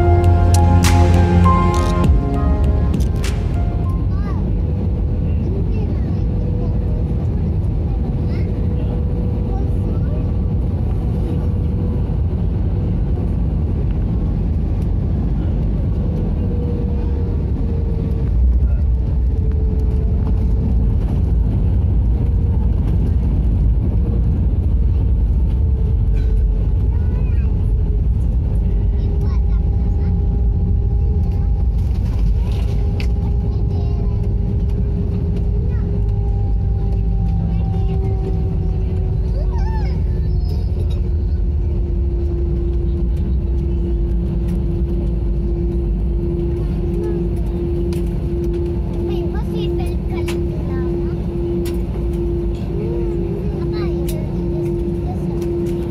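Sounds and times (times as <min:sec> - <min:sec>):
steady hum: 0:00.0 - 0:06.2, 0:27.8 - 0:55.9
airliner rumbling down runway: 0:00.0 - 0:55.9.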